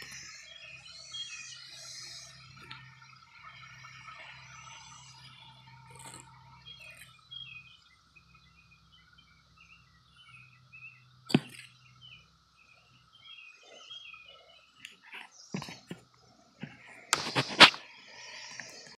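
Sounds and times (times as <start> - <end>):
birds chirping: 0.0 - 18.9
cicadas droning: 0.0 - 18.9.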